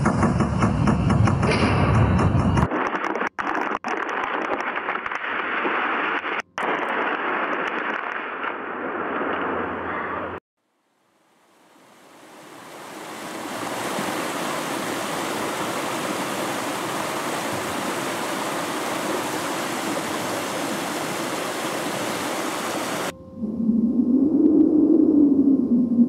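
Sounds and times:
steady rushing hiss: 11.0 - 23.1.

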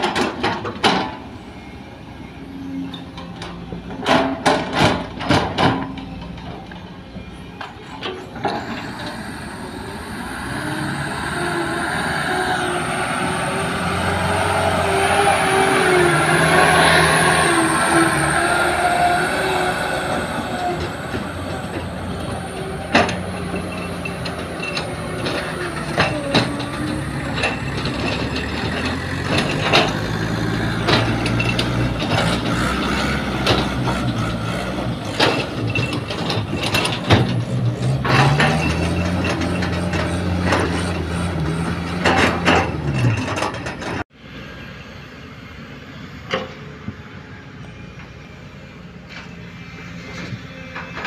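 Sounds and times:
clanks and rattles: 0.0 - 1.3, 2.8 - 7.0, 13.3 - 44.1
distant excavator digging: 0.0 - 44.6
dump trucks revving: 0.0 - 51.0.

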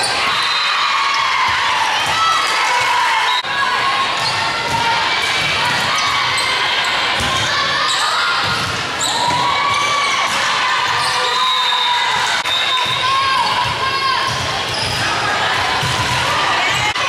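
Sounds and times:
crowd chattering: 0.0 - 17.0
sneakers squeaking on court: 14.3 - 15.0.

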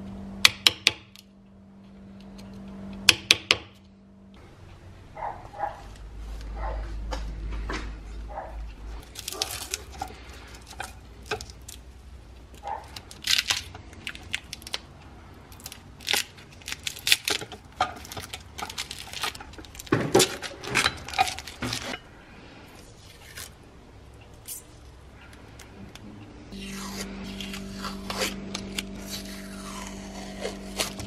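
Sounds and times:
tape and paper ripping: 9.0 - 11.8, 15.6 - 22.0, 26.6 - 31.0.

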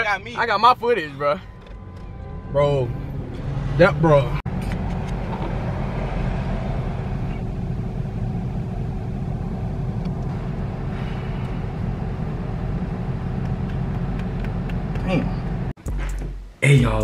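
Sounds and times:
car cabin rumble: 6.6 - 15.8.

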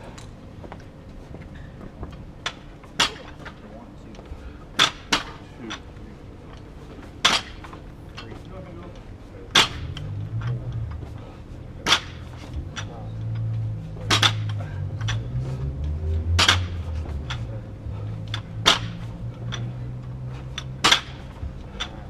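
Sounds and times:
steady low hum: 0.0 - 22.0
barbell banging on concrete: 4.8 - 5.4, 7.2 - 7.7, 9.5 - 10.6, 11.8 - 13.0, 14.0 - 15.3, 16.4 - 17.4, 18.3 - 19.8, 20.6 - 22.0.

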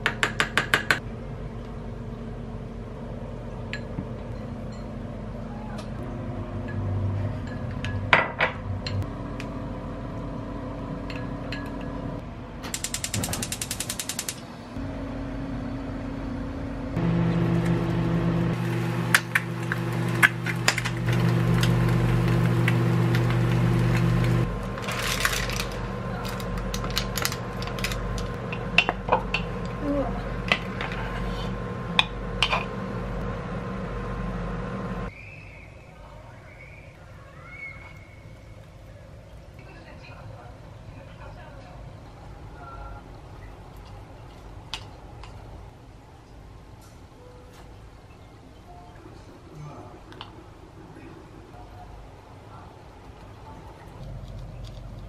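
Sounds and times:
low hum: 14.7 - 35.1.

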